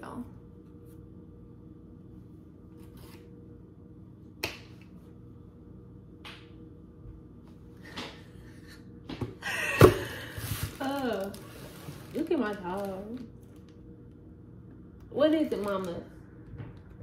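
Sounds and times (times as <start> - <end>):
faint steady hum: 0.0 - 17.0
finger snaps: 4.4 - 4.9.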